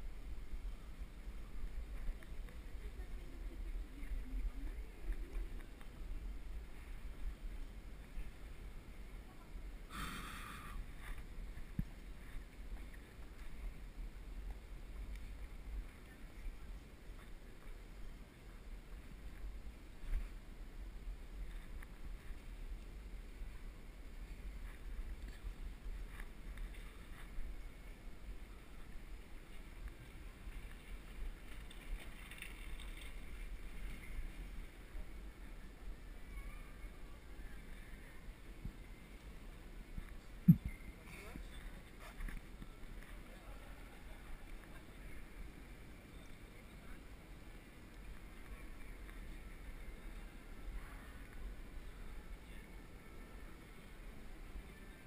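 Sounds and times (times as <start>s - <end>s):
wind rumble on microphone: 0.0s - 55.0s
high-pitched ringing: 9.9s - 10.8s.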